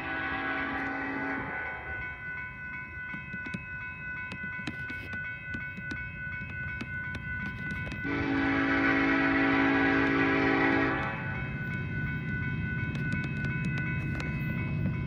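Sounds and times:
loud locomotive horn: 0.0s - 1.8s, 8.0s - 11.4s
railroad crossing bell ringing: 0.0s - 15.0s
diesel locomotive rumble: 7.4s - 15.0s.

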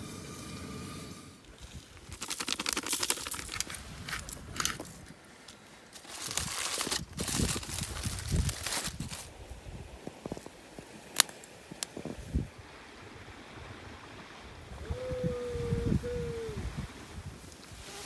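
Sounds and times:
aluminium foil crinkling: 2.1s - 4.8s, 6.0s - 9.3s.

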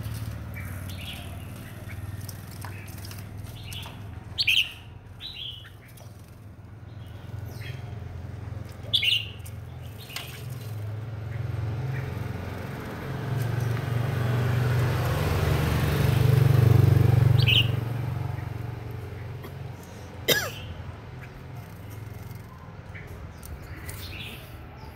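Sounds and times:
passing vehicle rumble: 0.0s - 24.9s
songbirds chirping: 0.0s - 24.9s.

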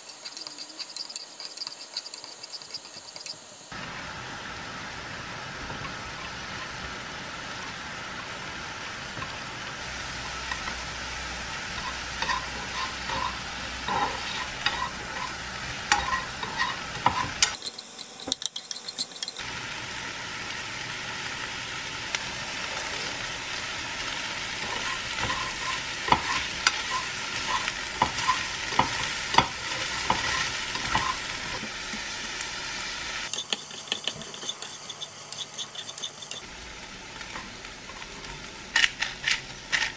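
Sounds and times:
utensil tapping and scraping pan: 0.0s - 3.4s, 11.7s - 19.4s, 24.6s - 31.7s, 33.3s - 36.5s
chicken and onion sizzling: 0.0s - 39.9s.

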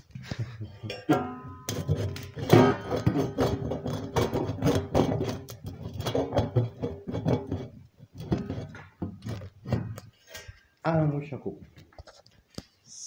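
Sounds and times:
metal pipes knocking and clanking: 0.6s - 10.3s.

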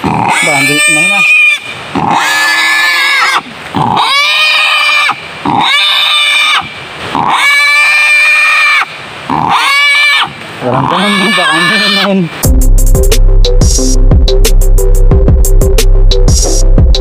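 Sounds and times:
wild boar squealing: 0.0s - 12.3s.

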